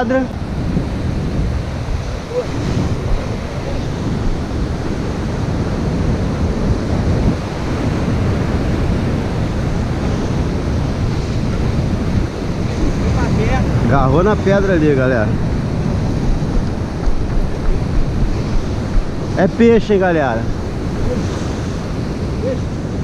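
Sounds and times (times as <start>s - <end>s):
surf breaking on rocks: 0.0s - 23.0s
wind buffeting microphone: 0.0s - 23.0s.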